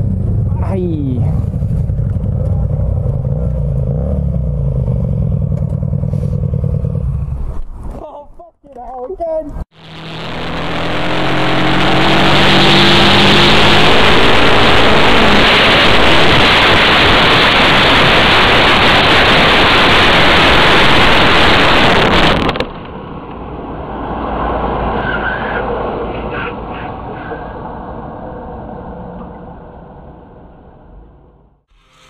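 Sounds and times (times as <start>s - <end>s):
motorcycle engine: 0.0s - 7.9s, 9.7s - 25.0s
low rumble: 0.0s - 8.0s, 9.7s - 25.0s
wind and road rush: 0.0s - 8.0s, 9.2s - 31.7s.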